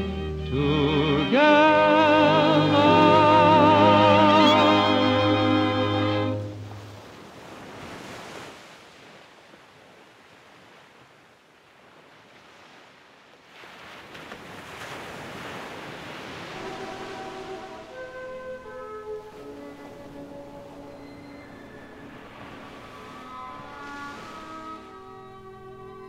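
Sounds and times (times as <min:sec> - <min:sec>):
ocean surf breaking over rocks: 0:13.5 - 0:26.0.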